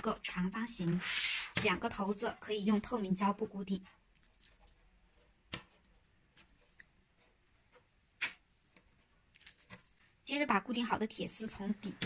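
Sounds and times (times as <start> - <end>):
hands tapping tape and frame: 5.5 - 10.0.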